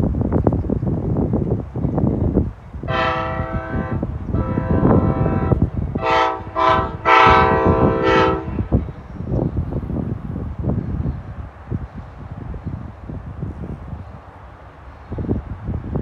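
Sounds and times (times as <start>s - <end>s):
wind rumble on microphone: 0.0s - 16.0s
locomotive air horn blasts: 2.8s - 8.8s.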